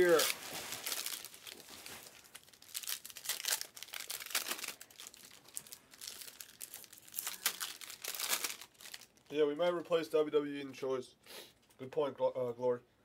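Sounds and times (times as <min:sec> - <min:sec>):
cards rustling: 0:00.0 - 0:09.1
wrappers crinkling and tearing: 0:00.0 - 0:09.4.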